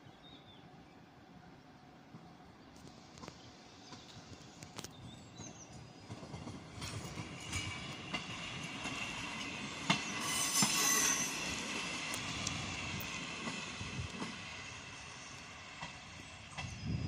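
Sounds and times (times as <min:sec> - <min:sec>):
railcar wheels squealing: 0:03.0 - 0:17.0
wheels clacking over rail joints: 0:03.2 - 0:16.7.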